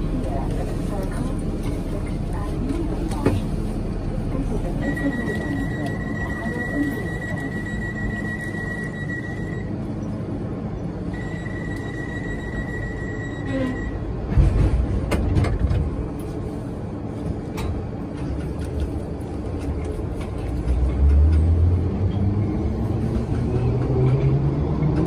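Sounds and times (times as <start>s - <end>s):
train low rumble: 0.0s - 25.0s
steady high tone: 4.8s - 9.8s, 11.1s - 14.0s.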